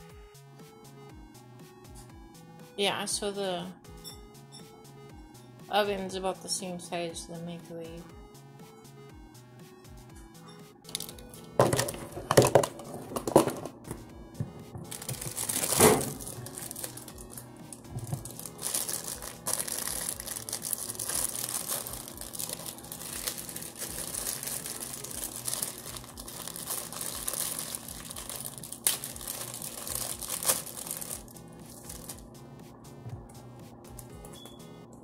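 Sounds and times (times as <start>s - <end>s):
plastic packaging crinkling: 10.9s - 13.7s, 14.8s - 32.3s.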